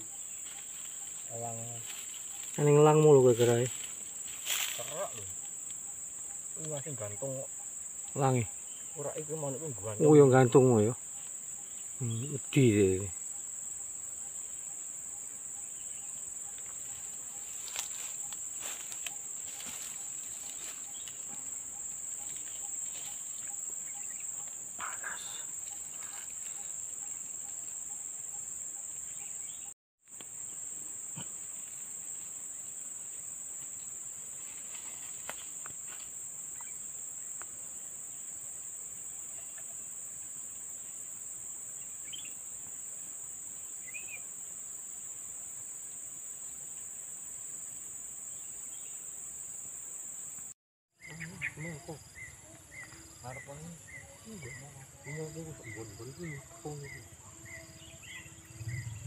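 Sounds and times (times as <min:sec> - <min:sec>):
insects buzzing drone: 0:00.0 - 0:59.0.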